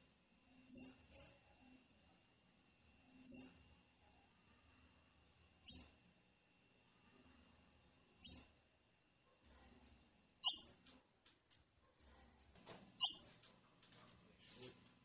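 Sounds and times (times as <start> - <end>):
bird high-pitched call notes: 10.4 - 10.7, 13.0 - 13.3.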